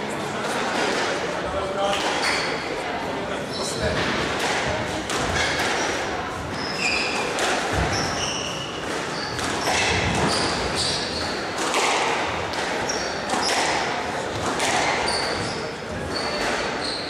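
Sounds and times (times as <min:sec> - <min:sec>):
crowd murmur: 0:00.0 - 0:17.0
squash ball smacking: 0:04.0 - 0:06.0, 0:07.1 - 0:08.2, 0:08.8 - 0:15.4
shoes squeaking on court: 0:05.3 - 0:11.6, 0:12.8 - 0:13.8, 0:14.8 - 0:17.0.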